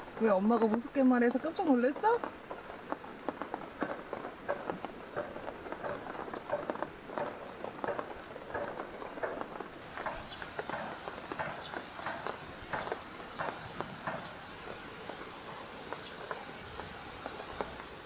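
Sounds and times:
rain dripping on tent: 0:00.0 - 0:18.0.

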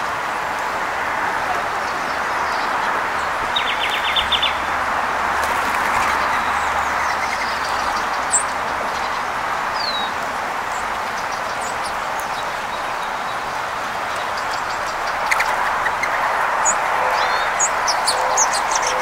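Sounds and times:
songbirds calling: 0:01.4 - 0:19.0.

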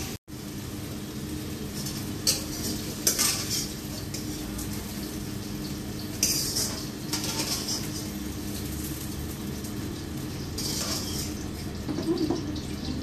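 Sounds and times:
metal spoon scraping a wok: 0:01.9 - 0:04.6, 0:06.2 - 0:08.2, 0:10.6 - 0:11.4.

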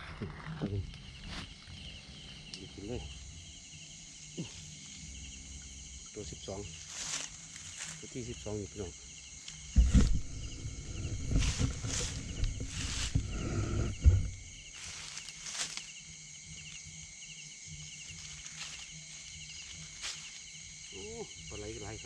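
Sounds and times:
insects chirping: 0:00.0 - 0:22.0
handling thumps and knocks: 0:09.7 - 0:14.9.

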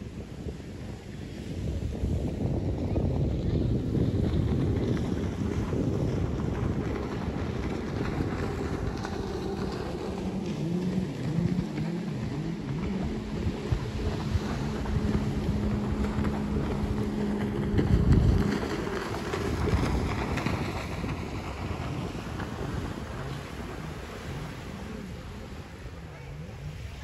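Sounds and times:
jet ski engine drone: 0:00.0 - 0:27.0
wind buffeting microphone: 0:00.0 - 0:27.0.

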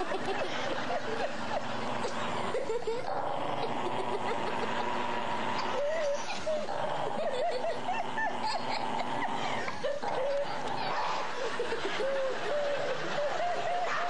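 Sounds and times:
stifled laughter: 0:00.0 - 0:14.0
dog growling and snarling: 0:01.4 - 0:12.0.

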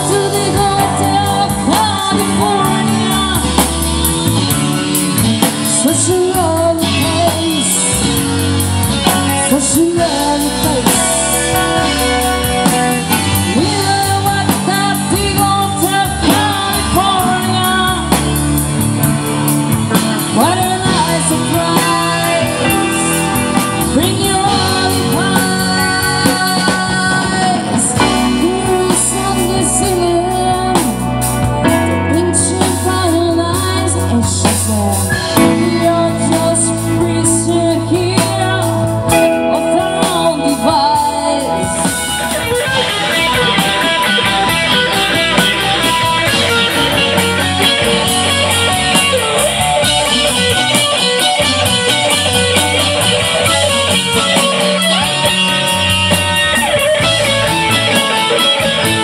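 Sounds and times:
woman singing: 0:00.0 - 0:04.6, 0:05.2 - 0:18.4, 0:19.9 - 0:42.9
drum kit: 0:00.0 - 0:59.0
electric guitar: 0:00.0 - 0:59.0
keyboard: 0:00.0 - 0:59.0.

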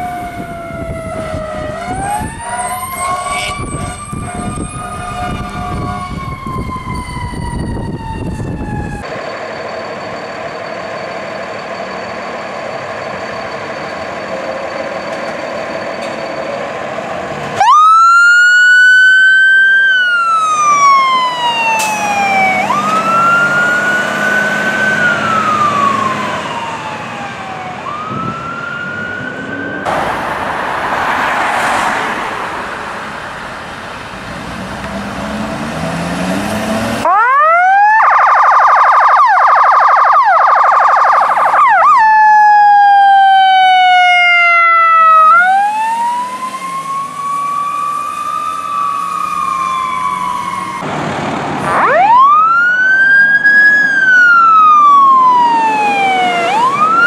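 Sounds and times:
siren fast warbling yelp: 0:00.0 - 0:09.1, 0:17.6 - 0:29.9, 0:37.1 - 0:50.8, 0:51.7 - 0:57.0
fire truck sirens wailing: 0:00.0 - 0:57.0.

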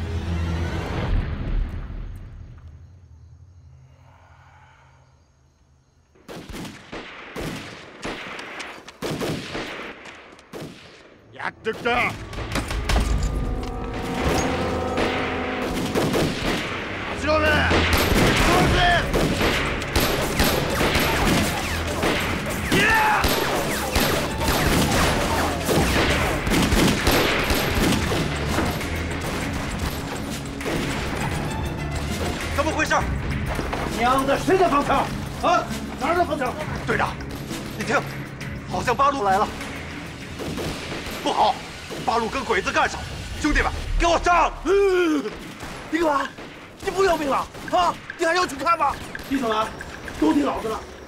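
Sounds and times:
gunfire bursts: 0:06.2 - 0:13.0, 0:15.0 - 0:29.9
dense rifle fire: 0:06.2 - 0:13.2, 0:15.0 - 0:29.9.

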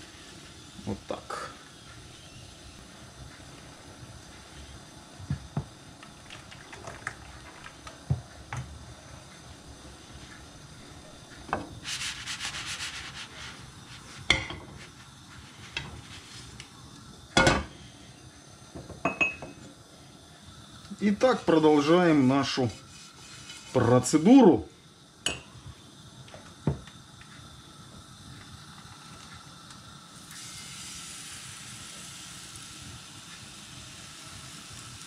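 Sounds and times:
faint steady hiss: 0:00.0 - 0:35.0
frying pan scraping: 0:11.8 - 0:16.6, 0:22.2 - 0:24.2.

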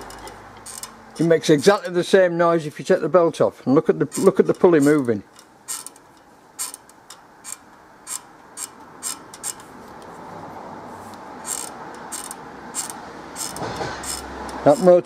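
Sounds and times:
pulley clicking and knocking: 0:00.0 - 0:02.0, 0:04.1 - 0:09.7, 0:11.4 - 0:15.0.

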